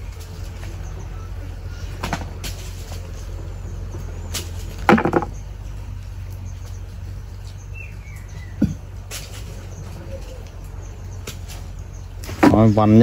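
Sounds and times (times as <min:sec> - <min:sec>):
low rumble: 0:00.0 - 0:13.0
nuts thudding into bucket: 0:04.4 - 0:05.4.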